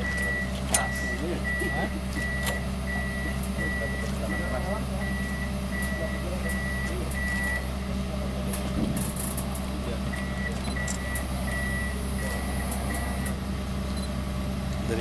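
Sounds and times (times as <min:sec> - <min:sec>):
warning alarm beeping: 0:00.0 - 0:07.8, 0:10.1 - 0:14.2
diesel engine running: 0:00.0 - 0:15.0.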